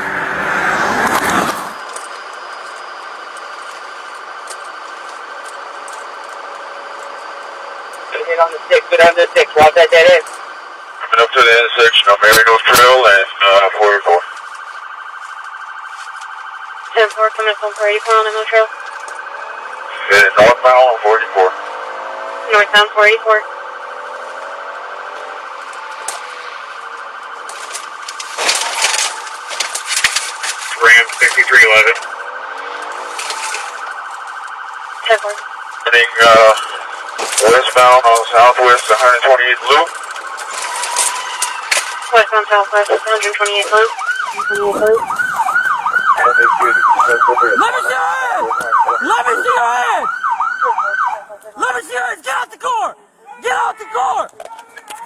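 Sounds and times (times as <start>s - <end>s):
car driving past: 0.0s - 1.8s
warbling police siren: 0.0s - 55.0s
car crash impact: 27.4s - 34.0s, 39.8s - 42.1s.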